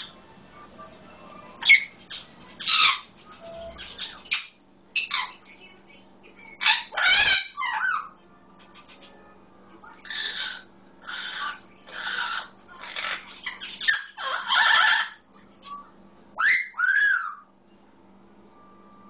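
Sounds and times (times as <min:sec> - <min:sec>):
parrot squawking: 0:01.4 - 0:05.5, 0:06.6 - 0:08.2, 0:09.9 - 0:15.2, 0:16.4 - 0:17.5.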